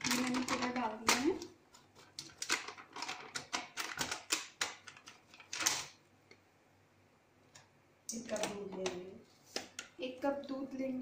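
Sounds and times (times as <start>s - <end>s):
plastic packet crinkling: 0.0s - 6.0s.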